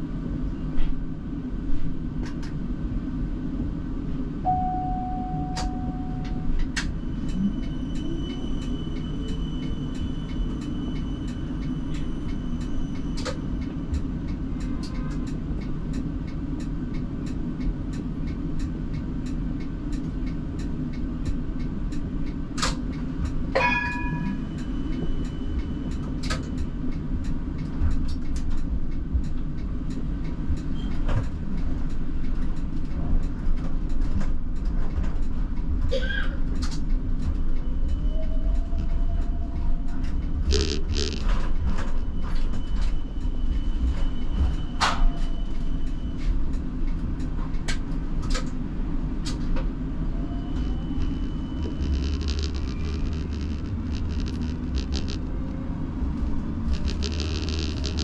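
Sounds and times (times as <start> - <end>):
tram rumbling on track: 0.0 - 58.0
rising whine: 40.4 - 41.2, 50.4 - 58.0
short ringing tone: 40.5 - 41.2, 56.7 - 58.0.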